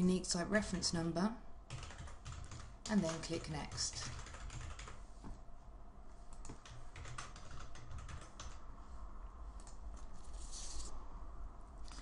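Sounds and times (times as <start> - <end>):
keyboard typing: 1.7 - 5.0, 6.3 - 8.6.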